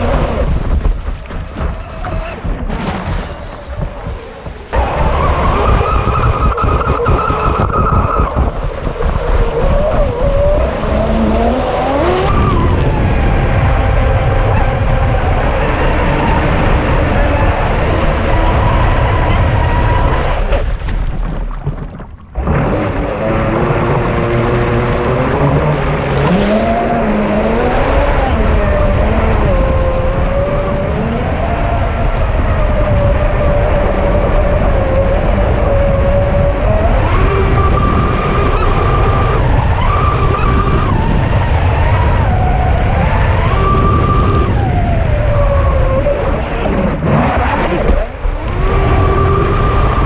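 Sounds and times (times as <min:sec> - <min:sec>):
water and wind rushing: 0:00.0 - 0:50.0
water rushing past hull: 0:19.8 - 0:27.8.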